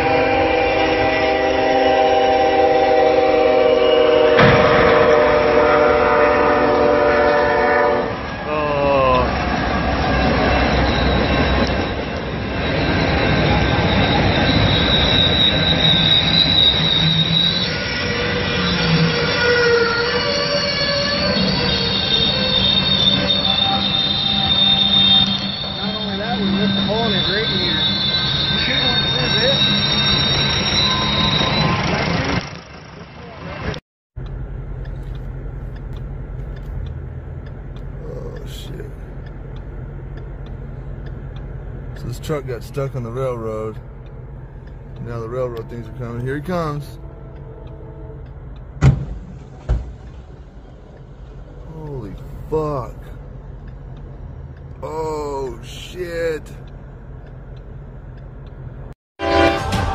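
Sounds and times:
high wheel squeal: 0.0s - 33.8s, 49.3s - 53.2s, 54.8s - 56.7s
train wheels rumbling on rail: 0.0s - 59.9s.

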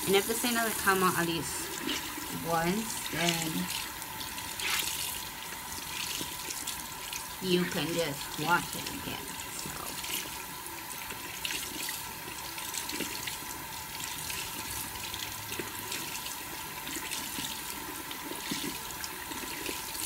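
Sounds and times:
sponge squeezed wet splashes: 0.1s - 10.3s.

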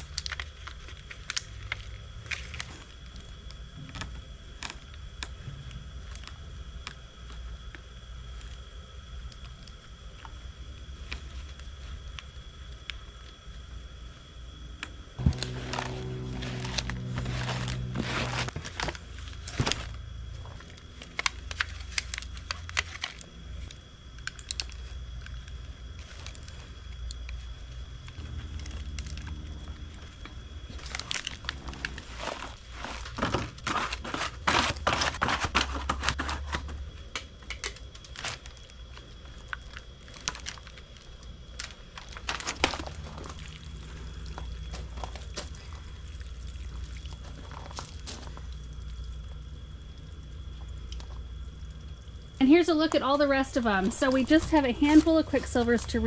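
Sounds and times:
plastic pots crinkling: 0.0s - 8.6s, 15.2s - 48.5s
soil rustling: 15.2s - 23.3s, 25.8s - 36.5s.

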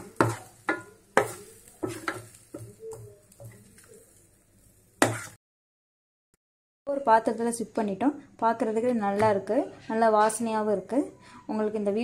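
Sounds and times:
metal spatula scraping steel pan: 0.0s - 4.2s, 5.0s - 5.4s.

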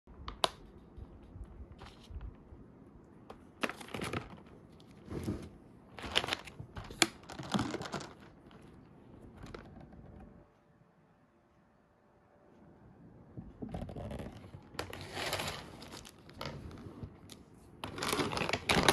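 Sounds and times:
plastic packaging crinkling: 3.6s - 5.0s, 5.9s - 10.2s, 13.9s - 18.9s.

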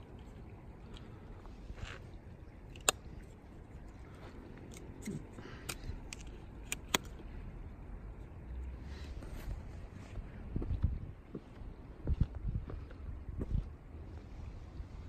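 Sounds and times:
low steady hiss: 0.0s - 15.0s
flashlight clicks: 5.7s - 7.2s.

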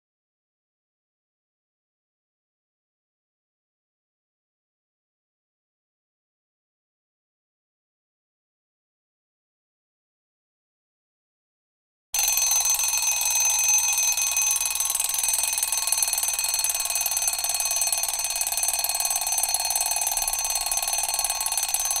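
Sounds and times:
high-pitched timer alarm: 12.2s - 22.0s.

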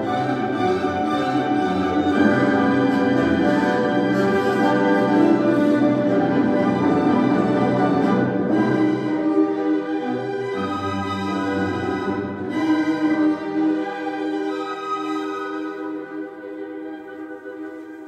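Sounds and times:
orchestral music with strings: 0.0s - 18.0s.

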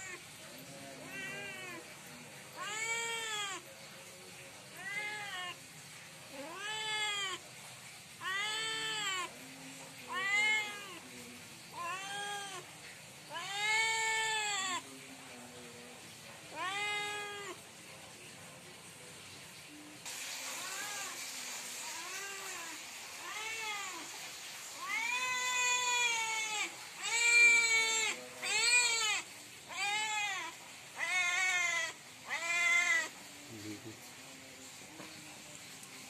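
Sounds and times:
cat meowing loudly: 1.0s - 3.8s, 4.7s - 5.7s, 6.3s - 15.0s, 16.5s - 17.6s, 20.4s - 33.2s.

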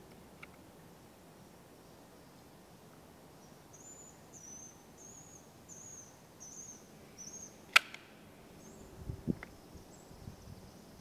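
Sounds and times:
sharp click: 7.7s - 8.1s.

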